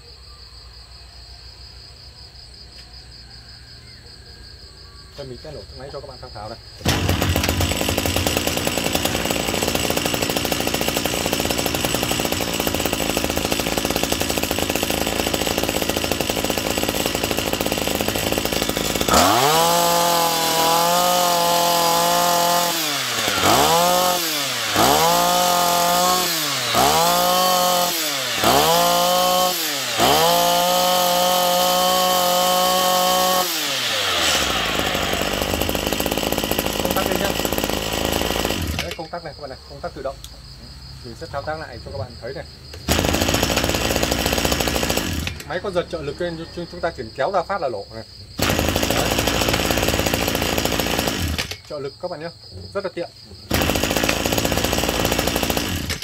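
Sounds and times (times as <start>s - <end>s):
brush cutter engine revving: 6.7s - 39.2s, 42.7s - 47.4s, 48.4s - 52.0s, 53.4s - 56.0s.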